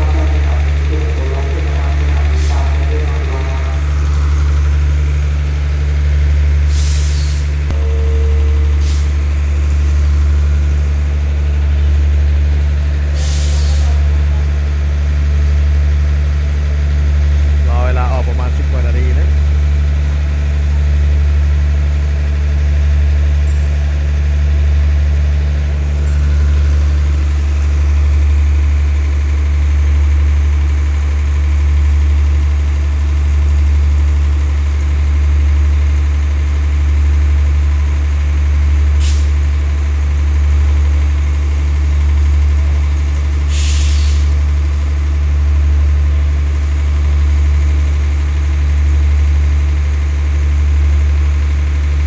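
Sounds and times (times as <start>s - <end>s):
train diesel engines idling: 0.0s - 52.0s
compressed air hissing: 6.7s - 7.6s, 13.1s - 14.0s, 43.5s - 44.3s.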